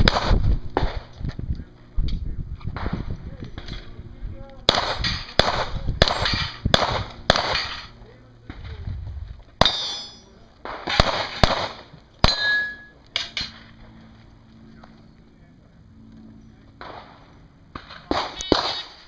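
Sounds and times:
pistol shots: 0.0 - 1.1, 4.7 - 7.8, 9.6 - 12.7, 16.8 - 19.0
ringing after shots: 18.1 - 19.0.

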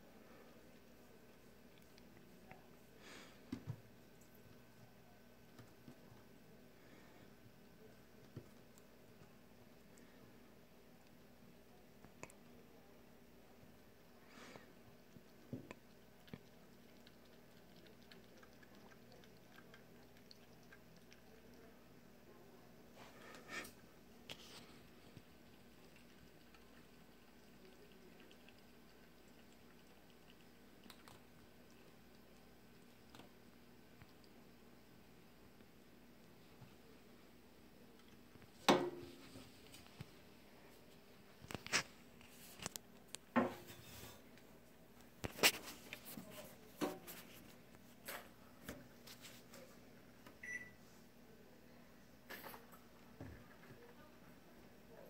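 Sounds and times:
kitten lapping liquid: 0.2 - 12.7, 13.3 - 22.2, 23.7 - 36.4
short high beep: 50.4 - 50.8.

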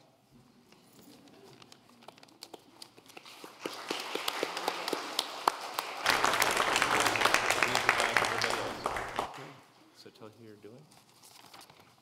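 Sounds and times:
congregation applauding: 3.2 - 9.6.

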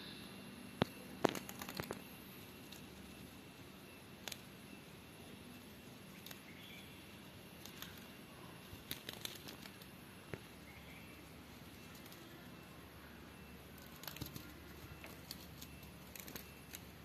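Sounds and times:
room hiss: 0.0 - 14.0
butterfly wings tapping on glass: 0.8 - 2.9.

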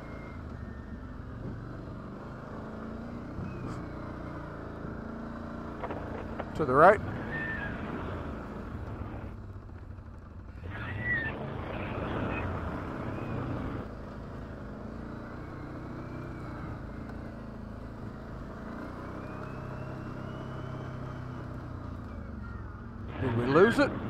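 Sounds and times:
atv engine running: 0.0 - 24.0.

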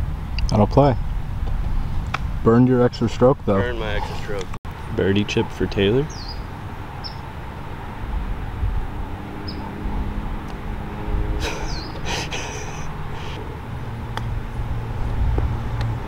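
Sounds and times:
birds chirping: 2.9 - 7.5, 9.2 - 10.7, 11.3 - 13.6.

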